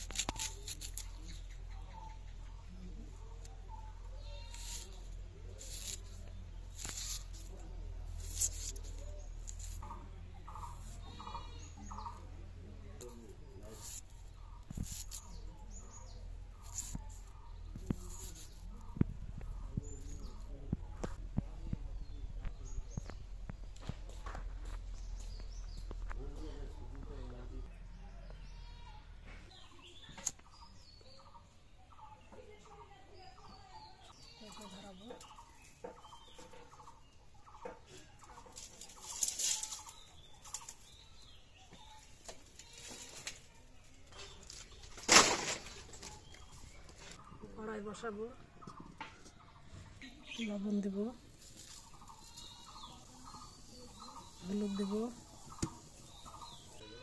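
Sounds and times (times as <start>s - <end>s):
rustle of dry sticks: 0.0s - 1.6s, 3.2s - 12.2s, 12.9s - 20.5s, 38.2s - 47.3s, 51.2s - 56.8s
small birds chirping: 0.0s - 57.0s.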